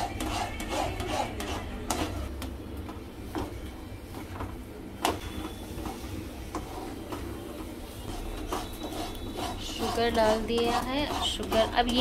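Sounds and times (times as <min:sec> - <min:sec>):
spatula scraping a pan: 0:05.8 - 0:12.0.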